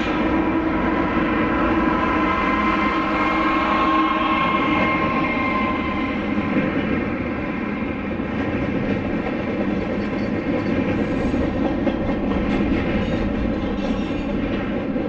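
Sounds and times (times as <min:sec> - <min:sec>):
freight train wheels clattering: 0:04.4 - 0:15.0.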